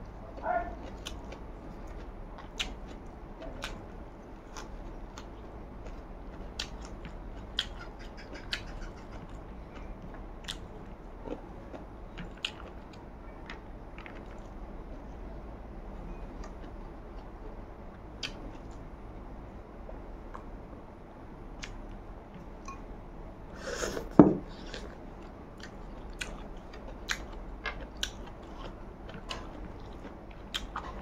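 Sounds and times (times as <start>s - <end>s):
person chewing rice: 0.0s - 15.2s, 23.7s - 31.0s
steady low hum: 0.0s - 31.0s.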